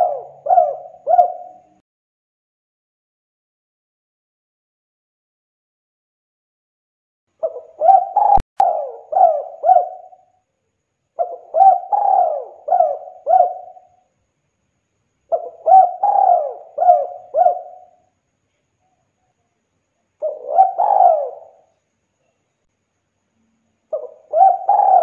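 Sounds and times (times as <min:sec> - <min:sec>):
dove cooing: 0:00.0 - 0:01.8, 0:07.4 - 0:10.3, 0:11.2 - 0:14.0, 0:15.3 - 0:18.0, 0:20.2 - 0:21.7, 0:23.9 - 0:25.0.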